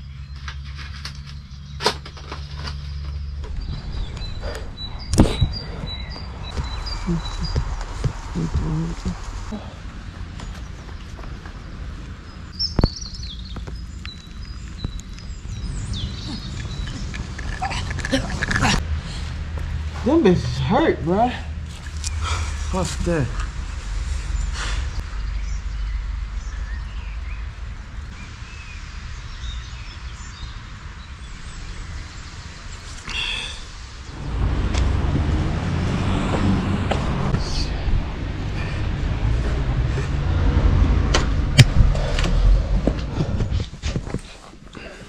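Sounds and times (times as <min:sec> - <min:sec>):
birds chirping: 0:00.0 - 0:18.8, 0:20.1 - 0:34.9
wind rumble on microphone: 0:03.0 - 0:19.2, 0:34.0 - 0:44.6
sharp thump: 0:05.1 - 0:05.6, 0:41.0 - 0:42.0.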